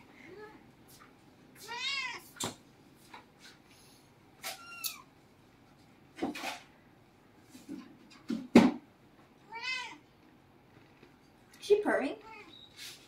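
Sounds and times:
cat meowing: 1.6 - 2.3, 4.4 - 5.1, 9.5 - 10.0, 12.2 - 12.6.

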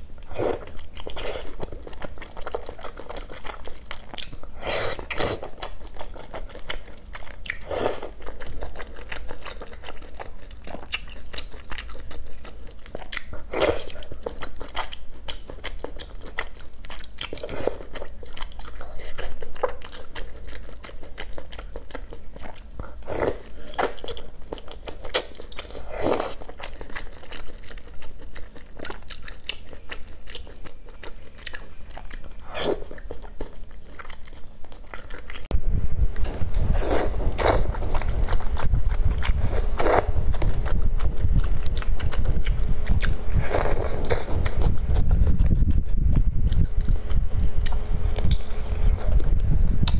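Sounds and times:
continuous chewing: 0.0 - 35.5, 36.1 - 49.9
person slurping noodles: 36.7 - 37.8.

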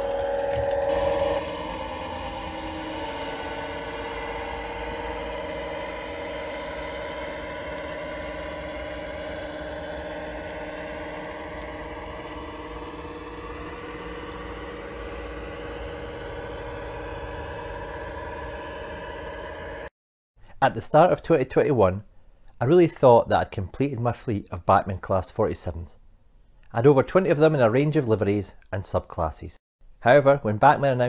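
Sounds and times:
diesel engine drone from speaker: 0.0 - 19.9.

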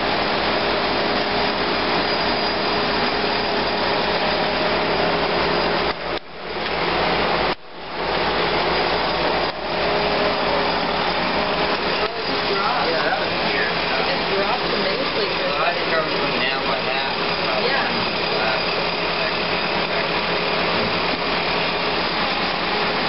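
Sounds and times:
engine idling: 0.0 - 23.0.

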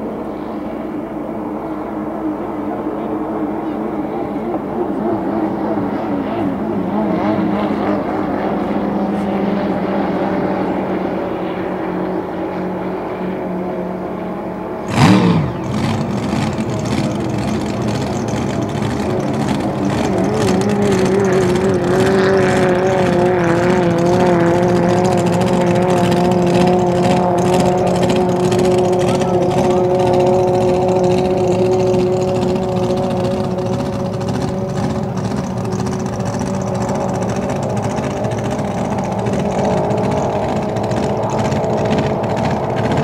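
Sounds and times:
racing boat engines at full throttle: 0.0 - 43.0
loud burst with falling pitch: 14.8 - 43.0.

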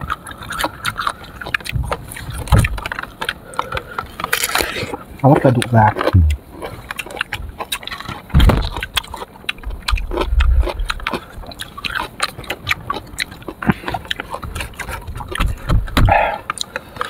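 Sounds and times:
crunchy chewing: 0.0 - 17.0.

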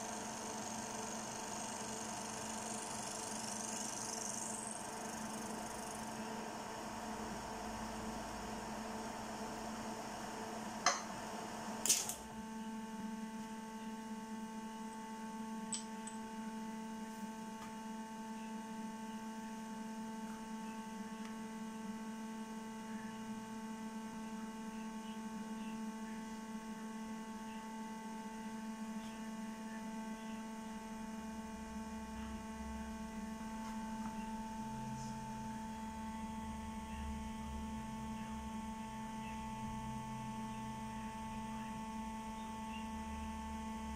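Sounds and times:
milling machine humming: 0.0 - 16.8.

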